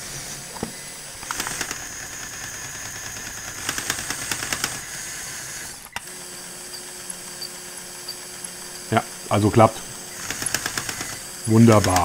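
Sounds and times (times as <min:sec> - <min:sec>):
small electric motors whining: 0:00.0 - 0:12.0
rapid clicking of gears: 0:01.2 - 0:08.9, 0:10.1 - 0:12.0.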